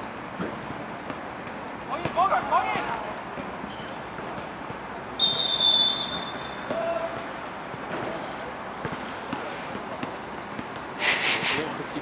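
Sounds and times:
referee's whistle blast: 5.2 - 6.9.

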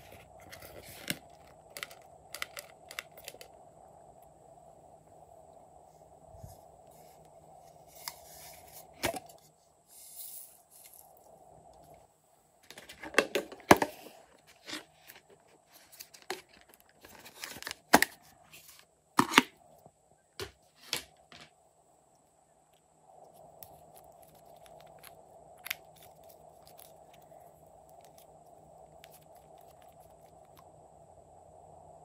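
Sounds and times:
rustling and scraping: 0.0 - 3.5, 6.4 - 11.2, 12.6 - 19.4.

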